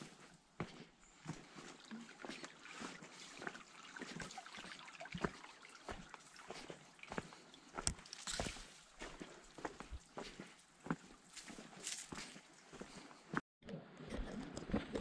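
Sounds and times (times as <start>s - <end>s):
footsteps on a trail: 0.0s - 13.4s
faint trickle of water: 1.2s - 13.0s.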